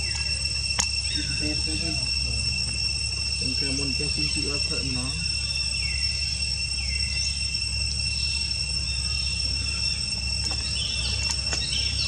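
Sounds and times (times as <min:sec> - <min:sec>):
high insect drone: 0:00.0 - 0:12.0.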